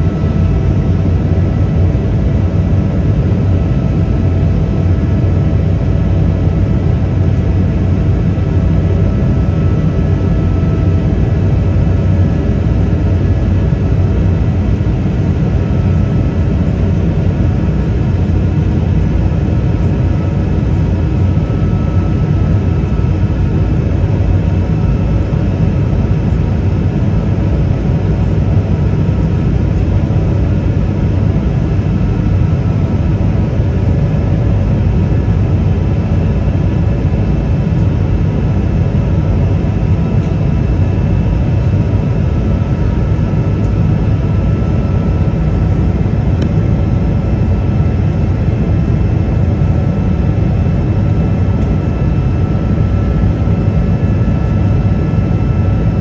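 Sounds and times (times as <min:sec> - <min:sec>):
jet engine drone in aircraft cabin: 0:00.0 - 0:56.0.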